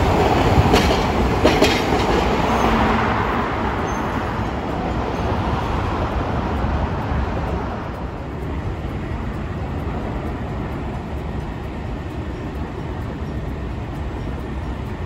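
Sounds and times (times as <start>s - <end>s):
car passing close: 0.0s - 12.0s
road traffic hum: 0.0s - 15.0s.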